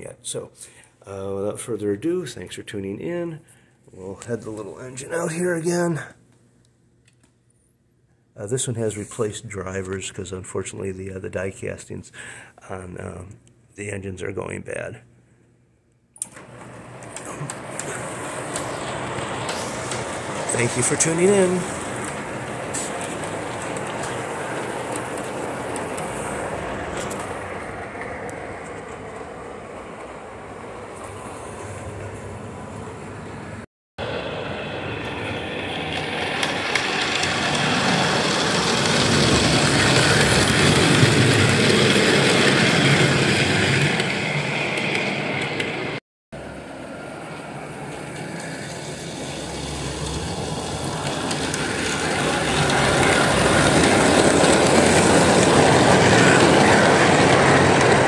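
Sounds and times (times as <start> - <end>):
model train wheels rumbling on rails: 16.2 - 33.2, 34.0 - 58.0.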